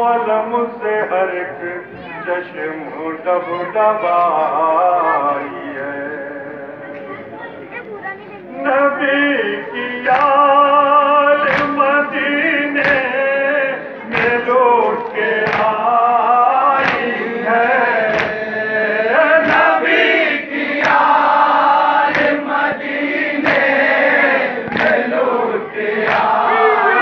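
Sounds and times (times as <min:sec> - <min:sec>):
man singing a lament: 0:00.0 - 0:07.0, 0:08.5 - 0:27.0
group of men singing along: 0:08.8 - 0:27.0
unison chest-beating strikes: 0:12.8 - 0:13.2, 0:15.3 - 0:16.0, 0:16.6 - 0:17.3, 0:18.0 - 0:18.8, 0:20.8 - 0:25.3, 0:25.9 - 0:26.8.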